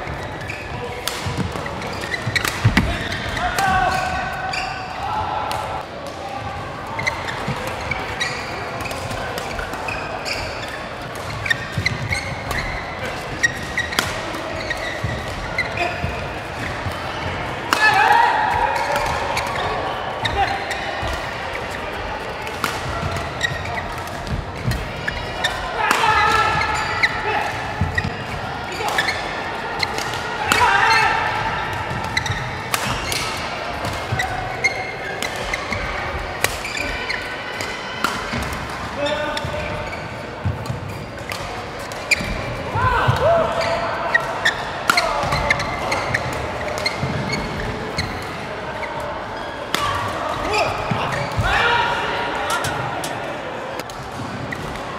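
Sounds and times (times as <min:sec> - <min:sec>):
sneakers squeaking on court: 0:00.0 - 0:05.0, 0:07.0 - 0:17.8, 0:22.7 - 0:31.0, 0:31.8 - 0:37.4, 0:38.3 - 0:51.5
rackets hitting shuttlecock: 0:00.1 - 0:04.6, 0:07.0 - 0:51.5
rackets striking shuttlecock: 0:31.8 - 0:36.7.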